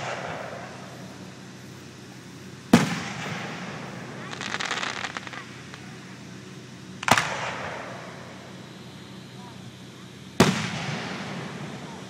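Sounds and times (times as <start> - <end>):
firework booms: 0.0 - 1.3, 2.7 - 6.2, 7.0 - 8.4, 10.4 - 12.0
firework crackling: 0.0 - 12.0.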